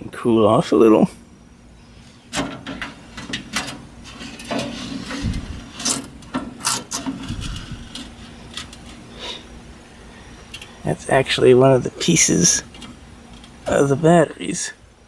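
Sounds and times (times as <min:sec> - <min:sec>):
metal tray scraping in runners: 0:02.4 - 0:09.4.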